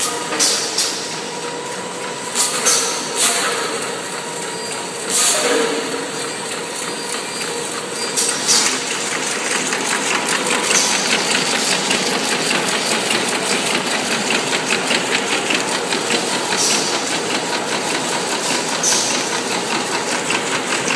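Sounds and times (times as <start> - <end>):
fast even machine clatter: 4.4 - 20.9.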